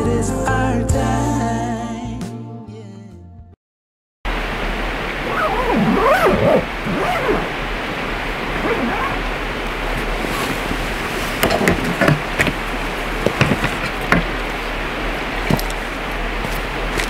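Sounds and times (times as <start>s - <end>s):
river flowing: 4.3s - 17.0s.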